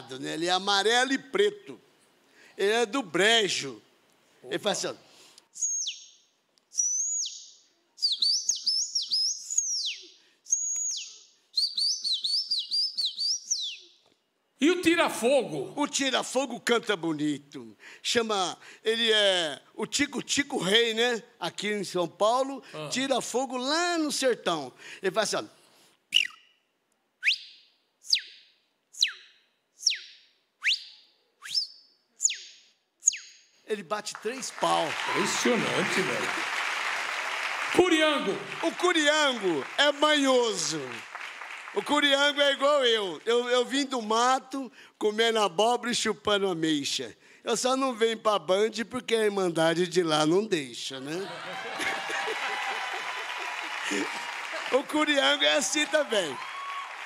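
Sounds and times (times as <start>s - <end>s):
man whistling bird calls: 5.6s - 14.0s, 26.1s - 33.5s.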